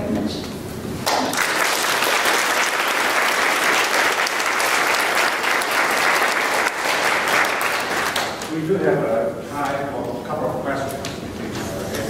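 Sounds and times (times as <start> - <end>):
audience applauding: 1.0 - 8.6.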